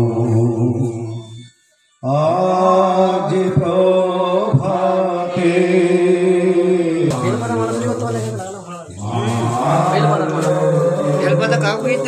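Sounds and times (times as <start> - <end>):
men chanting held notes: 0.0 - 12.0.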